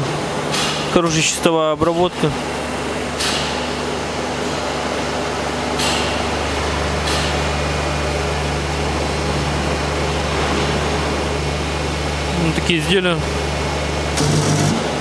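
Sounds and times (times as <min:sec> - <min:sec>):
machine humming and whirring: 0:00.0 - 0:15.0.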